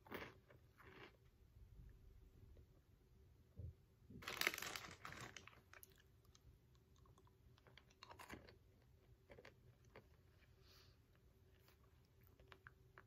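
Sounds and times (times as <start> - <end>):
crisp chewing crunches: 4.2 - 10.4.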